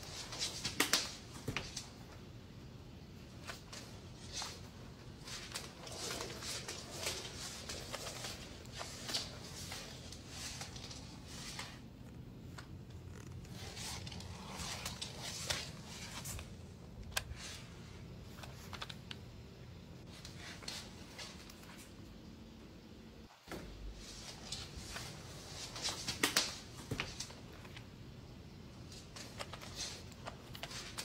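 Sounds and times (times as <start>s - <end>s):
steady low hum: 0.0s - 31.0s
claws clicking on hard floor: 0.1s - 1.9s.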